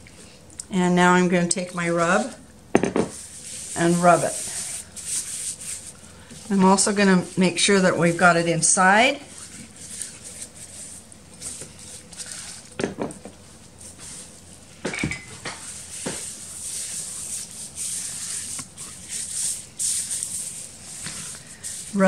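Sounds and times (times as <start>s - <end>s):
gloves squishing on wet chicken skin: 9.2s - 12.8s.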